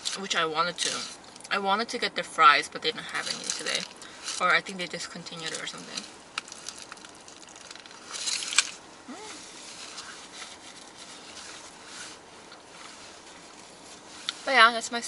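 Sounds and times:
foil wrapper crinkling: 3.1s - 8.8s, 9.4s - 14.1s
chewing: 5.4s - 8.8s
person humming: 9.1s - 9.4s.

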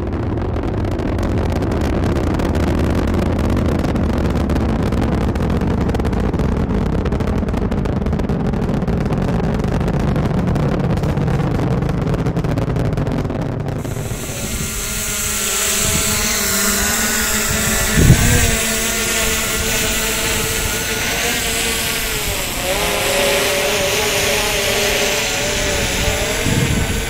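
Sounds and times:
aircraft motor drone: 13.0s - 27.0s.

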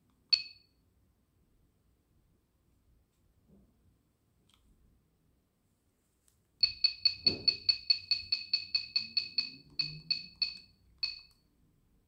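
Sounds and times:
short electronic beeps: 6.6s - 11.3s.

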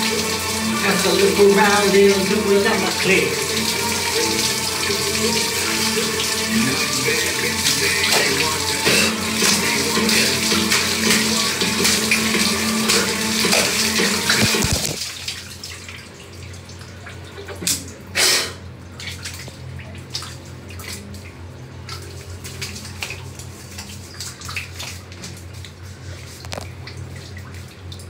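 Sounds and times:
shower water spraying on tiles: 0.0s - 15.8s
water dripping: 0.0s - 18.1s, 18.9s - 28.0s.

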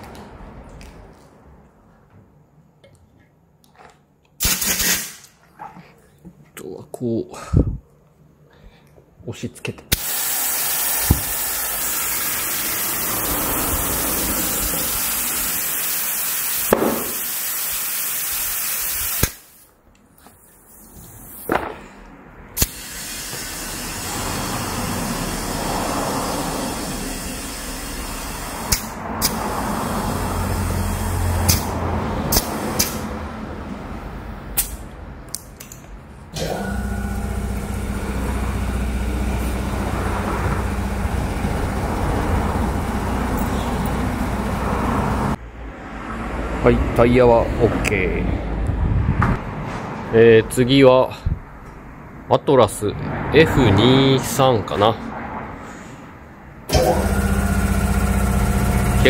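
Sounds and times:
compressed air hissing into tyre: 4.4s - 5.2s, 9.9s - 19.6s, 22.6s - 33.2s.

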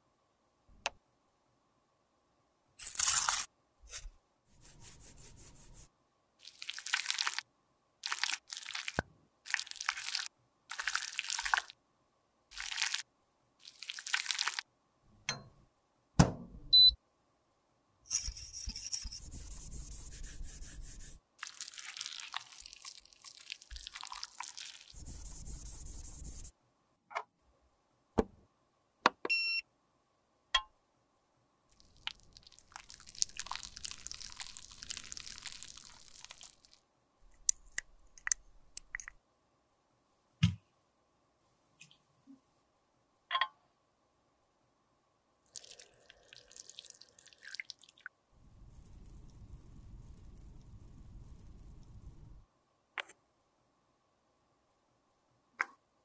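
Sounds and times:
short electronic beep: 16.7s - 17.0s
spoon scraping in glass beaker: 18.1s - 21.2s
clicks and taps: 37.3s - 39.2s.

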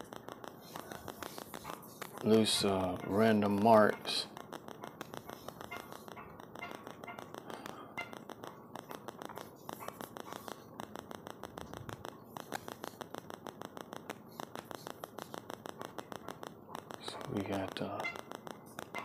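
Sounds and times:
charcoal scratching on paper: 0.6s - 2.4s.

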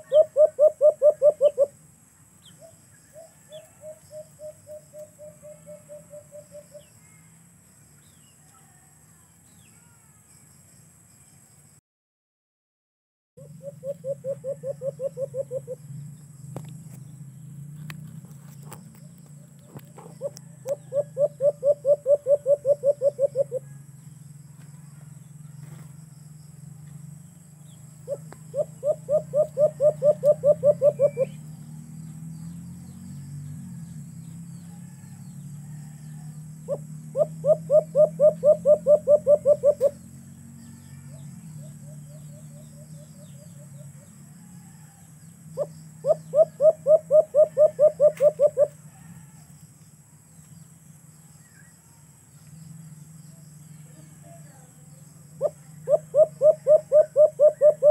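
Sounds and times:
dove cooing: 0.0s - 1.8s, 2.5s - 7.2s, 13.4s - 15.9s, 18.5s - 23.8s, 28.0s - 31.4s, 35.8s - 40.0s, 40.9s - 49.3s, 55.4s - 57.9s.

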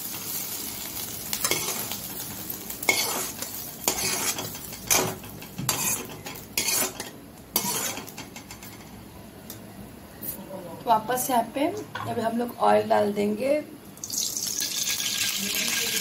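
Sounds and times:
oil sizzling: 0.0s - 8.8s, 13.9s - 16.0s
metal spatula scraping a wok: 1.4s - 2.0s, 2.8s - 8.8s.

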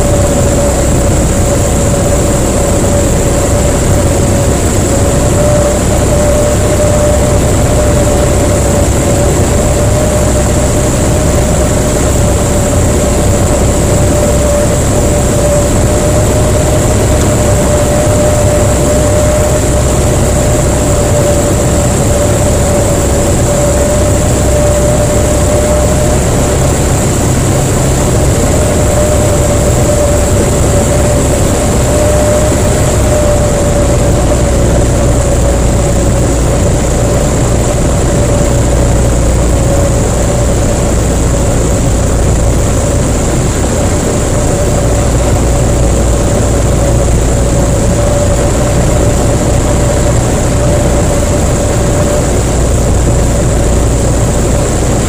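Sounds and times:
aircraft engine drone in cockpit: 0.0s - 55.0s
rushing air: 0.0s - 55.0s.

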